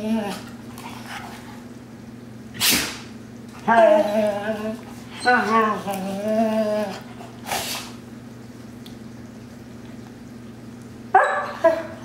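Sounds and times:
dog play growling: 0:00.0 - 0:01.8, 0:03.5 - 0:07.9.

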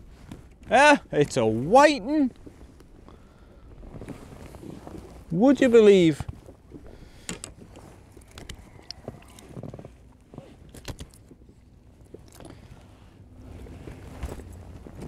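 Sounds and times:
fishing tackle knocking and clicking: 0:07.2 - 0:07.6.

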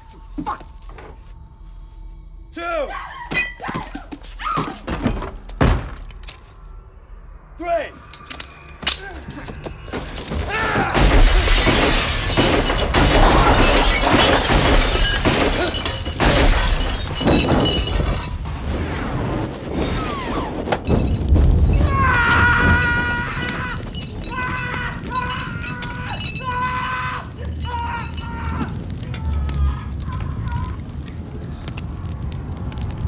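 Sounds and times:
glass breaking: 0:03.3 - 0:03.8, 0:09.5 - 0:18.6, 0:20.8 - 0:29.0.

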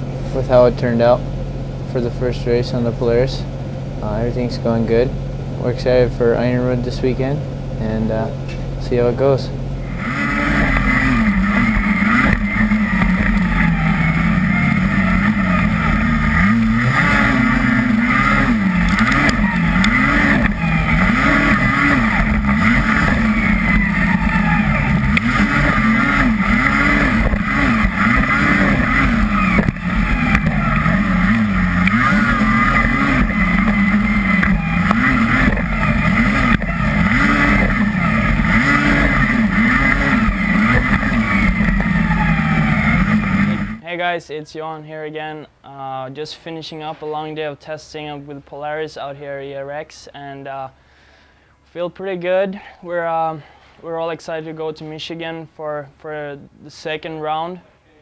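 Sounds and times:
snowmobile engine revving: 0:09.8 - 0:43.8.

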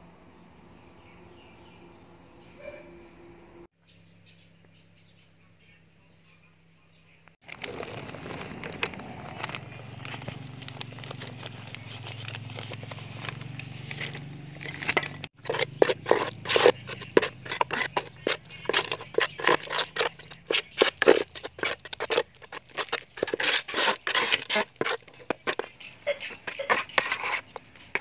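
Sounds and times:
trowel scraping cement in bucket: 0:07.4 - 0:28.0.

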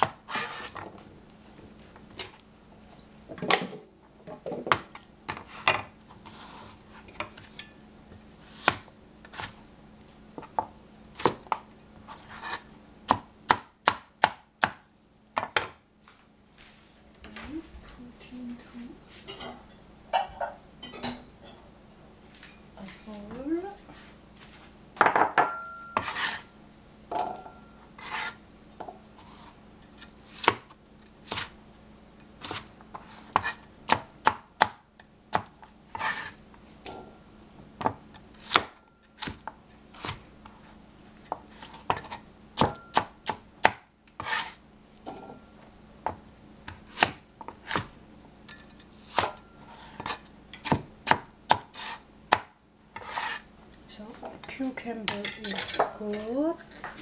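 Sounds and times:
knife chopping on cutting board: 0:12.3 - 0:14.8, 0:32.4 - 0:36.4, 0:37.8 - 0:40.2, 0:41.3 - 0:44.6, 0:46.1 - 0:47.9, 0:49.1 - 0:53.4.

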